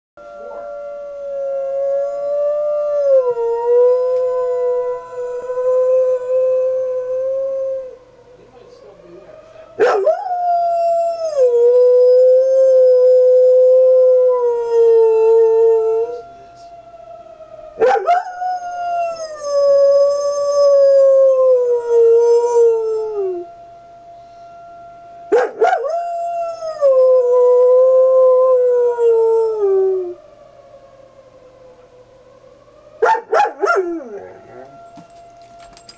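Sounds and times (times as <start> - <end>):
dog howling: 0.2 - 8.0, 9.7 - 16.2, 17.8 - 23.5, 25.3 - 30.2, 33.0 - 35.9
fire whistle steady tone: 23.0 - 26.6.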